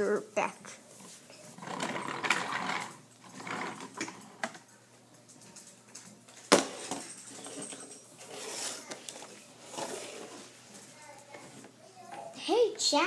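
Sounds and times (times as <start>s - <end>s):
plastic toys clicking and knocking: 1.6s - 10.4s.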